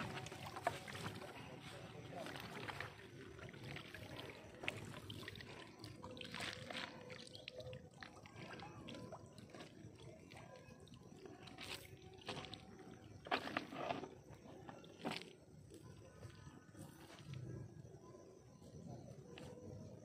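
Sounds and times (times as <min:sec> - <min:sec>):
water dripping and splashing: 0:00.0 - 0:13.4.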